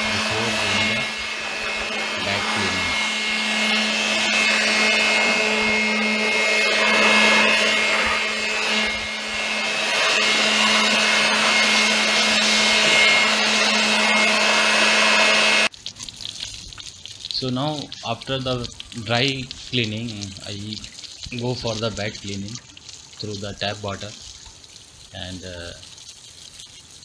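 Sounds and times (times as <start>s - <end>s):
electric air blower running: 0.0s - 15.7s.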